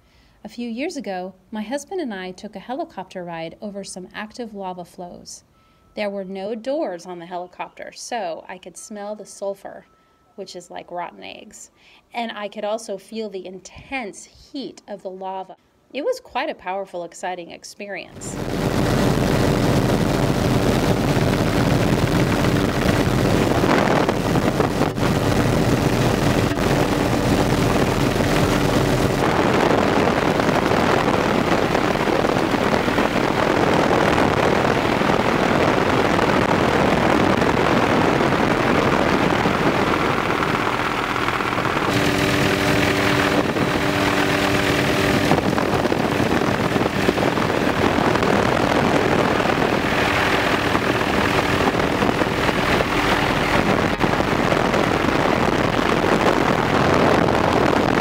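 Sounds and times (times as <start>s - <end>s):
wind rushing on microphone: 18.2s - 58.0s
helicopter engine and rotor drone: 18.4s - 36.5s, 38.3s - 56.3s.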